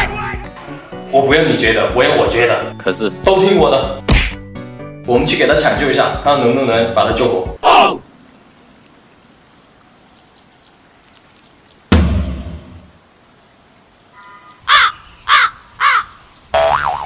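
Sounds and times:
sudden thump with low rumble: 11.9s - 12.8s
crow cawing: 14.1s - 16.2s.

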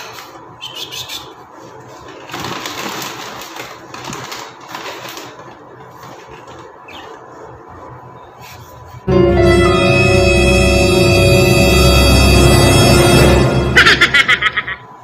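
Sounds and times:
plastic bag rustling: 1.8s - 7.4s.

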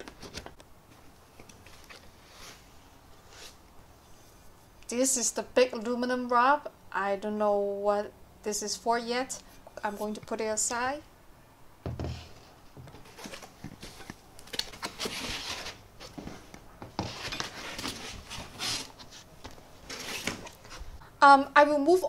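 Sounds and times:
foam and cardboard scraping: 14.8s - 20.9s.

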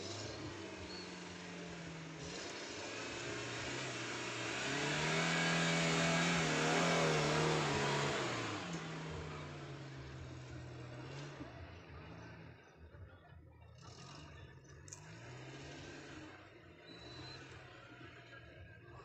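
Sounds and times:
tyres churning sand: 0.0s - 11.3s
engine revving: 0.0s - 13.0s, 13.6s - 19.0s.

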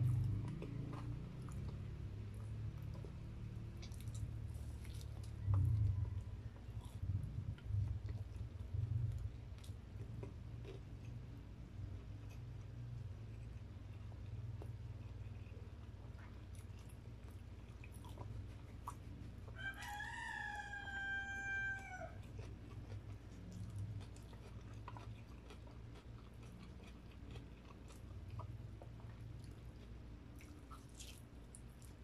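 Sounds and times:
chewing and clicks of eating: 0.0s - 20.9s, 21.7s - 32.0s
rooster crowing: 5.3s - 6.9s, 19.6s - 22.2s.

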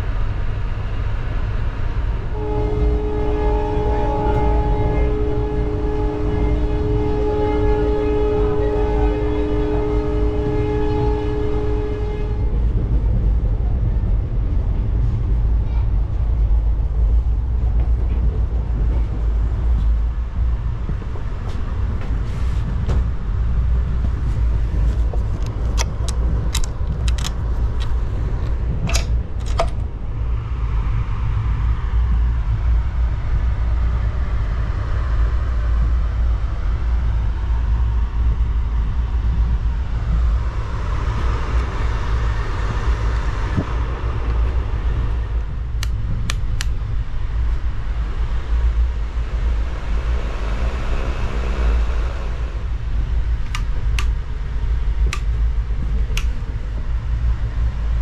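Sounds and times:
train coach rumbling: 0.0s - 58.0s
metal door latch clicking: 28.8s - 29.8s.

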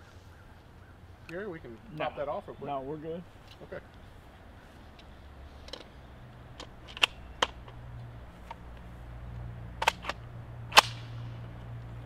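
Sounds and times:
rifle metallic clicks: 6.6s - 7.8s, 9.8s - 11.7s.

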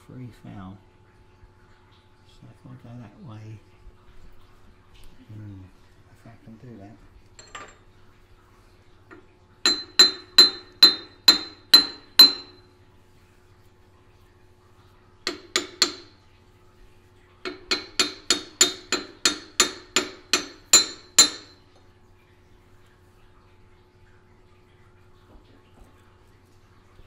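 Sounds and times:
hammer tapping on steel: 9.7s - 12.6s, 15.3s - 16.2s, 17.4s - 21.6s.

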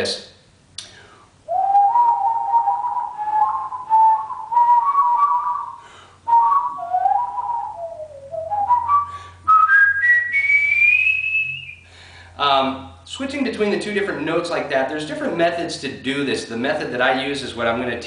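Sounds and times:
person whistling warbling: 1.5s - 11.8s.

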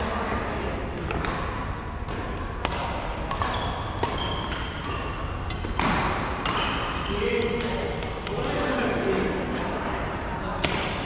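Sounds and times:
rackets hitting a shuttlecock: 0.0s - 11.0s
shoes squeaking on court floor: 3.3s - 5.4s, 6.4s - 8.5s.

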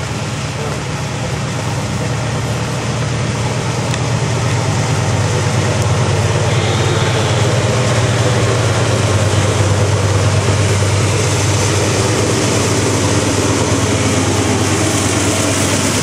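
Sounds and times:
diesel locomotive engine drone: 0.0s - 16.0s.

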